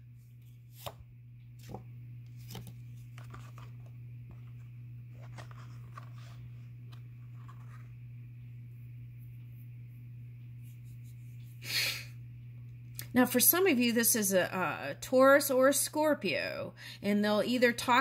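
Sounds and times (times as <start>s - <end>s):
steady low hum: 0.0s - 18.0s
cards clicking and rustling: 1.6s - 7.9s.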